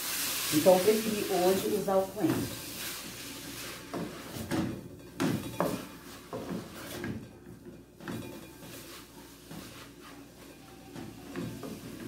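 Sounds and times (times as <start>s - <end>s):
wooden spoon scraping a pot: 0.6s - 4.7s, 5.5s - 7.3s, 8.2s - 12.0s.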